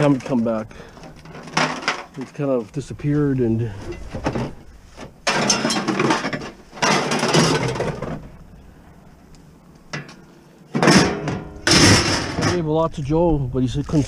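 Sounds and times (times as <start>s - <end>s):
scrap metal clattering: 0.0s - 2.5s, 3.6s - 8.4s, 9.9s - 12.7s.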